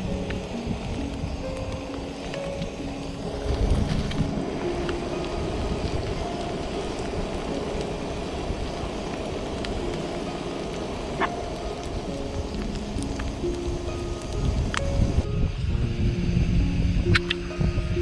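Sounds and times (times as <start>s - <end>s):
faint music notes: 0.0s - 18.0s
wind buffeting microphone: 0.0s - 18.0s
sharp click: 17.1s - 17.4s.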